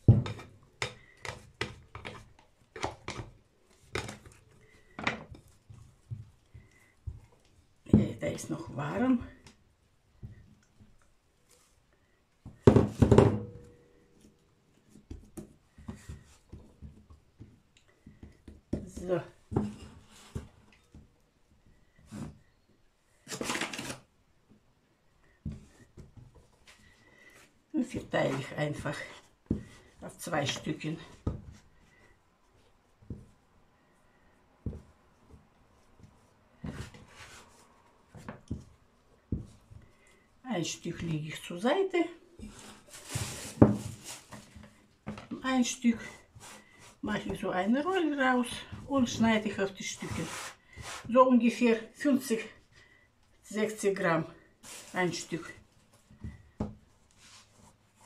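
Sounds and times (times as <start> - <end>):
dough kneading thuds: 14.8 - 21.2, 34.6 - 39.9
rubbing rustling: 50.0 - 51.2.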